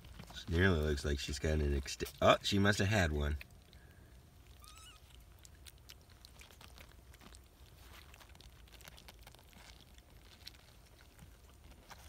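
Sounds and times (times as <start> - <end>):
kittens suckling wet clicks: 0.0 - 12.0
tiny kitten squeak: 4.5 - 5.2.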